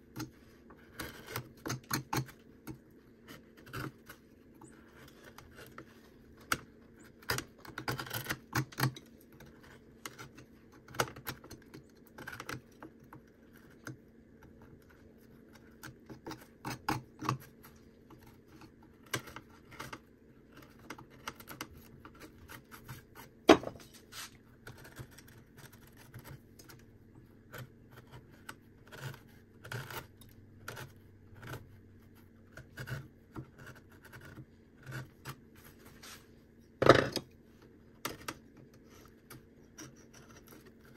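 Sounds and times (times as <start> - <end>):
knife cutting and scraping bark: 0.1 - 12.7.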